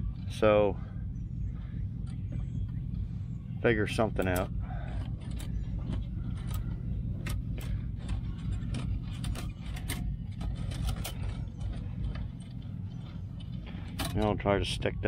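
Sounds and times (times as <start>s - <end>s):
steady low rumble: 0.0s - 15.0s
metallic clicks and rattles: 4.0s - 14.4s.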